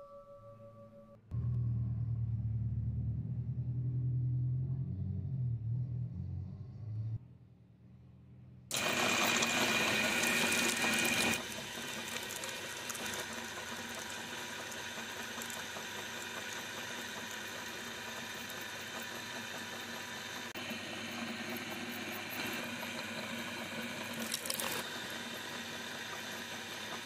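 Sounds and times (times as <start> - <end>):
electric meat grinder motor: 8.7 - 27.0.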